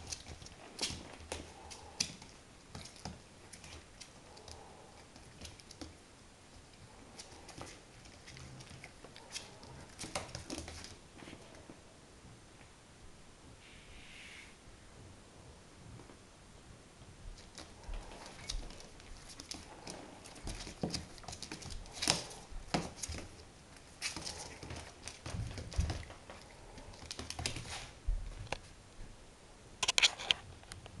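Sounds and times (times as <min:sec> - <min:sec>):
puppy claws clicking on floor: 0:00.0 - 0:06.0, 0:06.6 - 0:11.0, 0:17.4 - 0:28.6.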